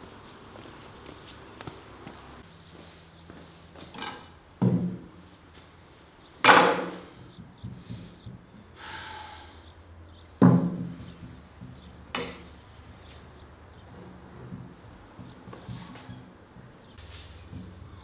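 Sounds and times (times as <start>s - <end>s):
head thudding on wooden board: 10.4s - 11.2s.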